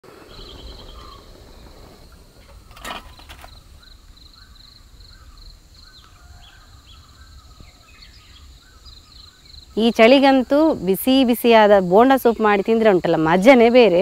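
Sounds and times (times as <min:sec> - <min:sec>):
birds calling: 0:00.0 - 0:10.4
insect chirping in pulsed bursts: 0:00.1 - 0:14.0
short clatter: 0:01.7 - 0:03.7.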